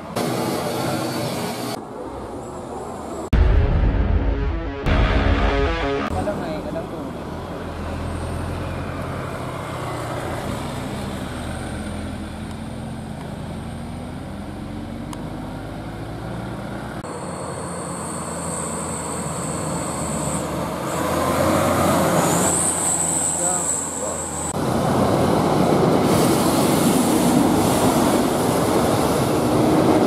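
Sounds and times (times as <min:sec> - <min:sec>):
trucks driving by: 0:04.3 - 0:30.0.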